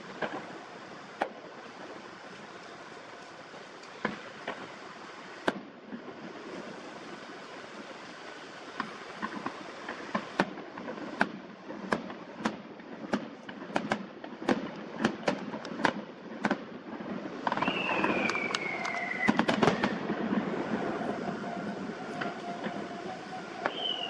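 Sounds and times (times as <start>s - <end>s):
distant fireworks bursting: 0.0s - 24.0s
train passing: 17.2s - 24.0s
high whine sliding down: 17.4s - 24.0s.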